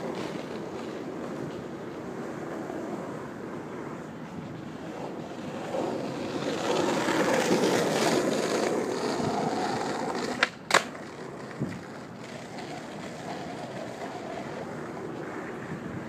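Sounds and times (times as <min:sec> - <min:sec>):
skateboard rolling over asphalt: 0:00.0 - 0:16.0
skateboard tail popping: 0:03.6 - 0:15.8
skateboard landing crack: 0:06.1 - 0:13.8.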